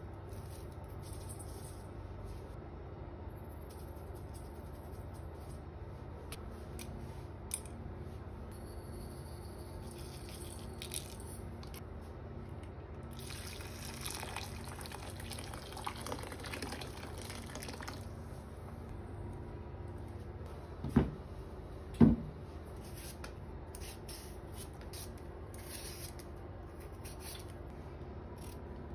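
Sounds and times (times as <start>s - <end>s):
hot water pouring into bowl: 13.1s - 18.1s.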